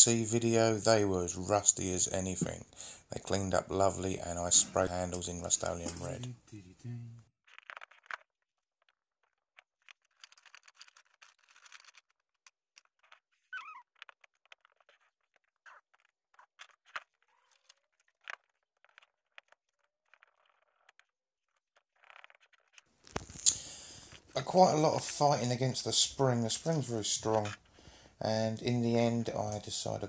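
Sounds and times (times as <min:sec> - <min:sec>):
tools scraping: 0:04.2 - 0:06.3.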